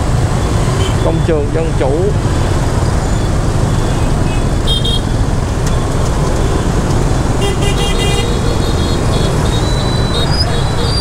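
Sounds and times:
traffic rumble: 0:00.0 - 0:11.0
vehicle horn beeping: 0:07.4 - 0:11.0.

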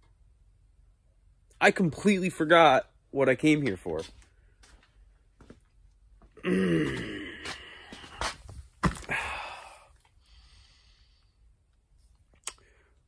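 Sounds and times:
man groaning: 0:06.4 - 0:07.8
breathy exhale: 0:09.1 - 0:11.4.

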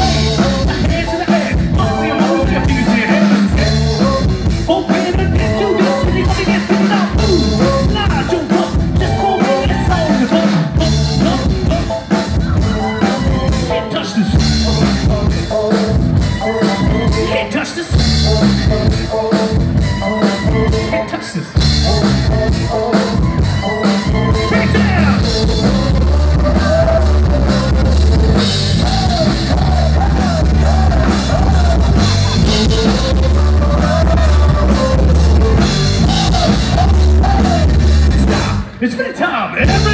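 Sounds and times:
person singing: 0:00.0 - 0:38.6, 0:39.5 - 0:39.9
heavy bass guitar: 0:00.0 - 0:38.8, 0:39.6 - 0:39.9
live rock band playing: 0:00.0 - 0:39.9.

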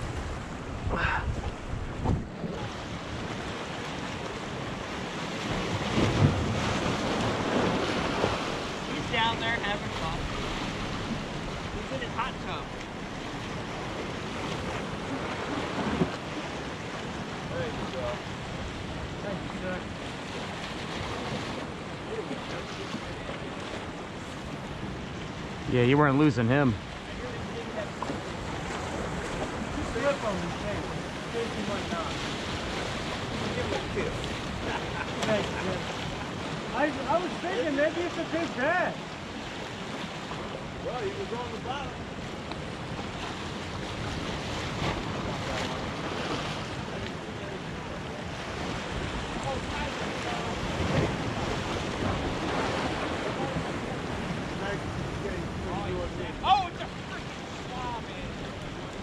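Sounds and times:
wind on microphone: 0:00.0 - 0:09.3
wind buffeting microphone: 0:00.0 - 0:25.7
sea waves against rocks: 0:00.0 - 0:59.0.

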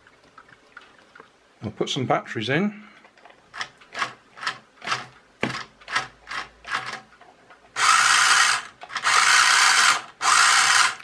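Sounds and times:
toy car motor whirring: 0:07.8 - 0:11.0.

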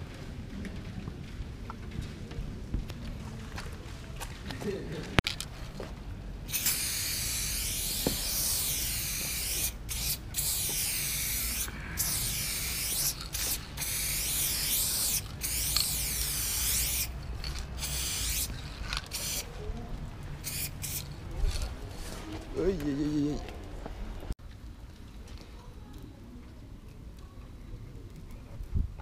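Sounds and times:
spray paint can spraying: 0:06.5 - 0:19.5, 0:20.4 - 0:21.7.

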